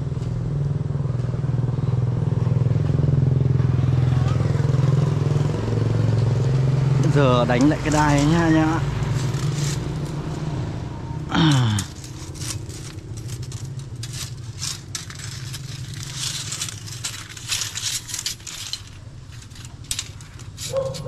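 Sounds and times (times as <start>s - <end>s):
metal strap scraping and clicking: 7.0s - 10.5s, 11.2s - 21.0s
low hum: 8.8s - 20.9s.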